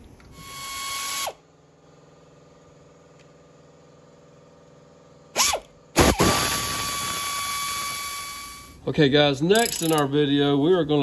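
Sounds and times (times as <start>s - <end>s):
air ratchet whining: 9.5s - 10.1s.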